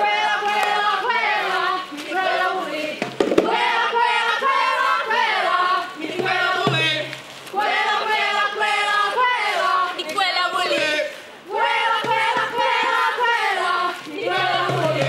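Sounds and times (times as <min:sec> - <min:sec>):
group of voices singing: 0:00.0 - 0:15.0
sharp knocks: 0:03.0 - 0:03.6.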